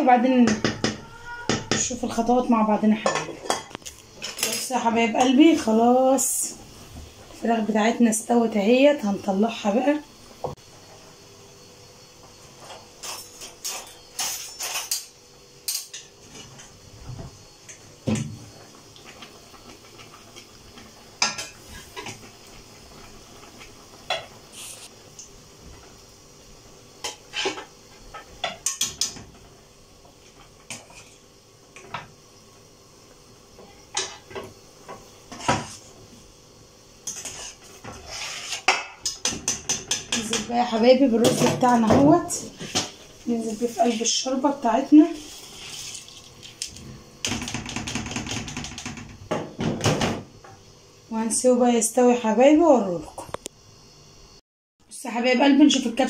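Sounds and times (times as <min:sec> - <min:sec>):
skimmer scraping: 0:37.1 - 0:38.7, 0:41.3 - 0:47.0.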